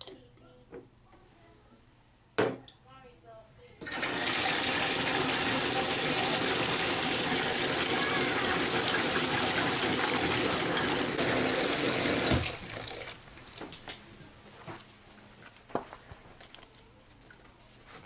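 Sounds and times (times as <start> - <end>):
tap water pouring into bucket: 3.8 - 13.8.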